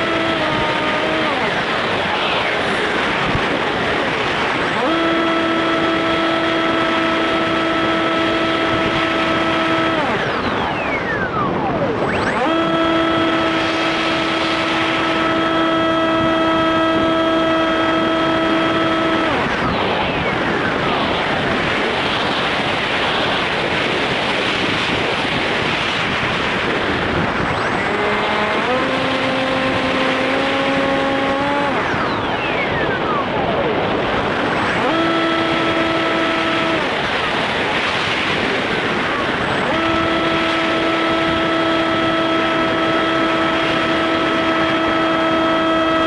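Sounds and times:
brief falling whines: 0.0s - 22.6s
electric motor and propeller whine: 0.0s - 46.0s
wind rushing over airframe: 0.0s - 46.0s.

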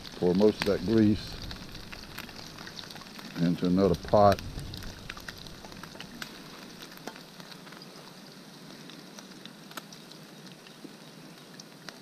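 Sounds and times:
hot grease crackling and sizzling: 0.0s - 12.0s.

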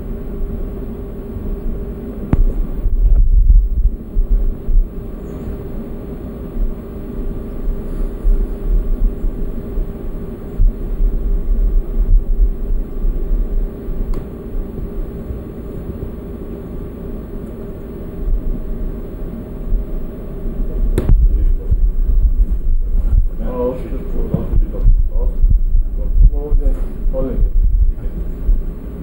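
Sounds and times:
steady hum: 0.0s - 29.0s
wind buffeting microphone: 2.3s - 5.6s, 19.7s - 29.0s.

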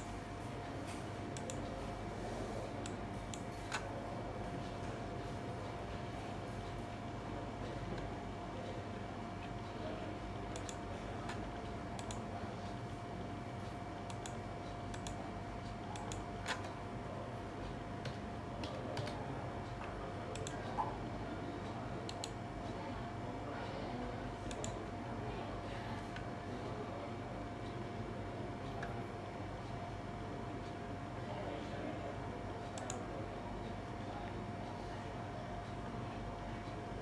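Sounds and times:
computer keys clicking: 1.4s - 1.7s, 10.5s - 11.4s, 12.0s - 12.3s, 14.1s - 16.7s, 20.3s - 20.6s, 22.1s - 22.4s, 24.5s - 24.8s, 32.7s - 33.0s.

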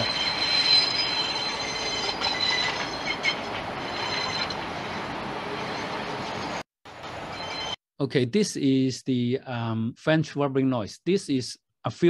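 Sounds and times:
wheel-rail rolling noise: 0.0s - 7.7s
railway wheel squeal: 0.0s - 7.8s.

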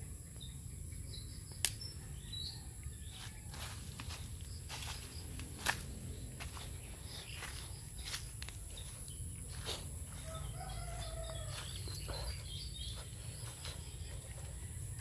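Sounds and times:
rooster crowing: 2.1s - 4.0s, 10.0s - 12.4s
footsteps in dry leaves: 3.0s - 15.0s.

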